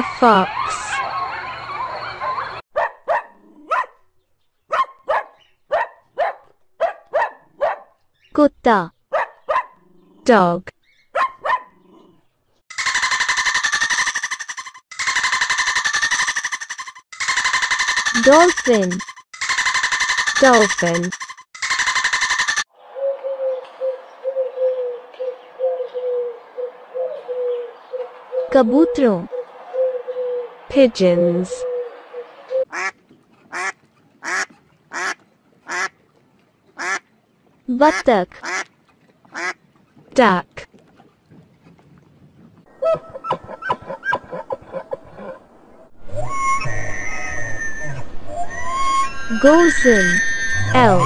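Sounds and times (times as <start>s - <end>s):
dog barking: 2.2s - 4.0s, 4.7s - 8.0s, 9.1s - 9.8s, 11.1s - 11.8s
pigeon cooing: 22.4s - 30.6s, 31.6s - 32.7s.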